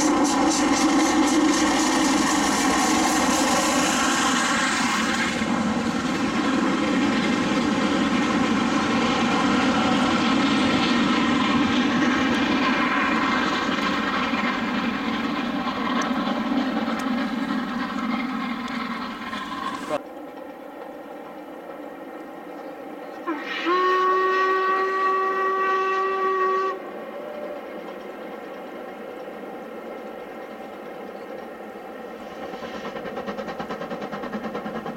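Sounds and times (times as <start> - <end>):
steam locomotive exhaust roar: 0.0 - 34.9.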